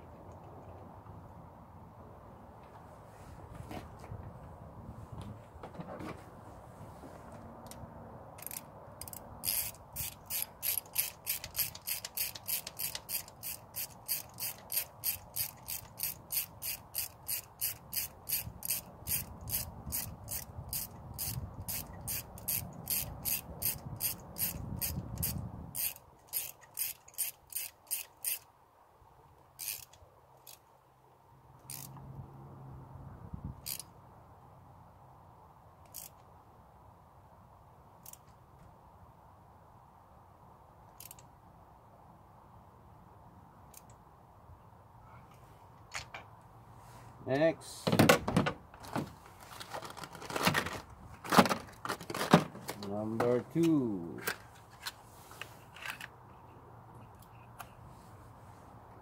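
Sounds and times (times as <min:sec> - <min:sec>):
ratchet wrench clicking: 0:08.4 - 0:28.5, 0:29.6 - 0:30.6, 0:31.6 - 0:32.0, 0:33.6 - 0:33.9, 0:35.9 - 0:36.2, 0:38.0 - 0:38.2, 0:41.0 - 0:41.3.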